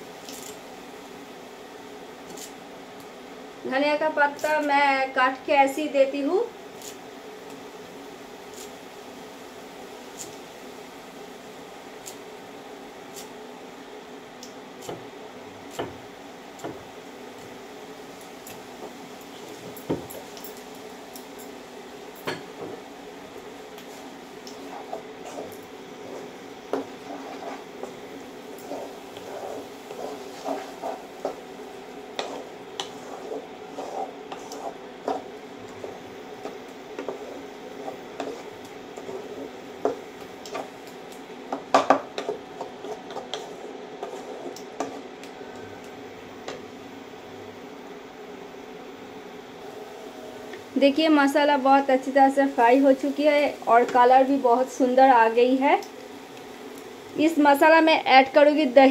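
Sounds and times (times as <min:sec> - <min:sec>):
steady hum: 0:00.0 - 0:58.9
spatula scraping pan: 0:23.8 - 0:40.8, 0:41.5 - 0:45.2.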